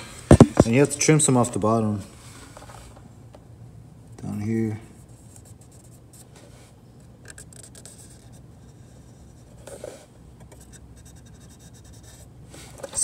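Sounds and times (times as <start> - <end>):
marker pen scratching on plastic: 7.2 - 12.3.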